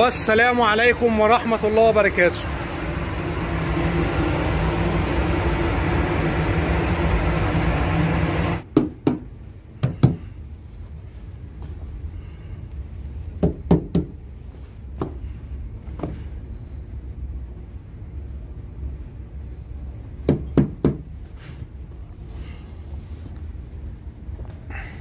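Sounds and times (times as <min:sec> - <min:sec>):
mechanical hum and rush: 0:00.0 - 0:25.0.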